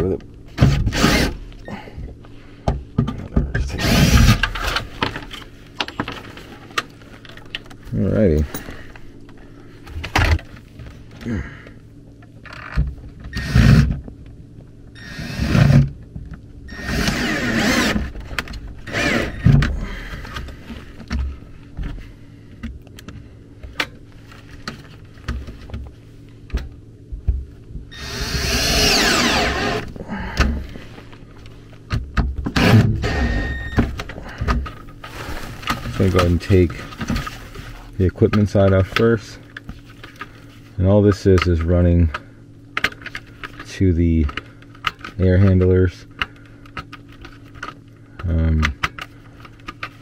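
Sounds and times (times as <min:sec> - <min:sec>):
cordless drill running: 0:00.9 - 0:01.4, 0:03.8 - 0:04.4, 0:13.4 - 0:13.8, 0:15.0 - 0:15.8, 0:16.7 - 0:18.1, 0:18.8 - 0:19.5, 0:27.9 - 0:29.9.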